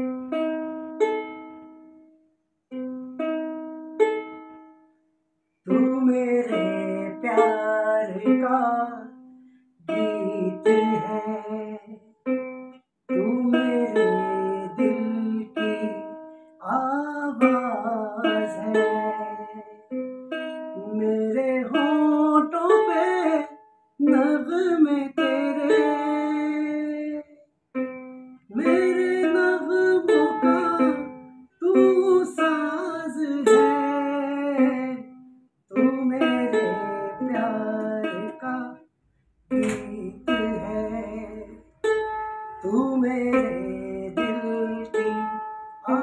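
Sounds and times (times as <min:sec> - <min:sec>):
ukulele playing: 0:00.0 - 0:46.0
man singing: 0:05.7 - 0:09.2, 0:09.8 - 0:12.1, 0:13.1 - 0:19.9, 0:20.8 - 0:27.4, 0:28.5 - 0:38.9, 0:39.5 - 0:41.8, 0:42.6 - 0:46.0.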